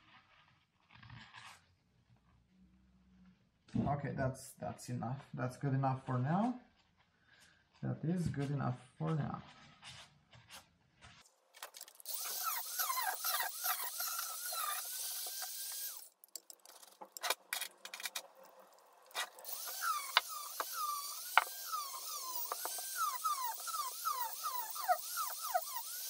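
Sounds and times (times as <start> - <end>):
rotary tool whining on metal: 11.6 - 26.0.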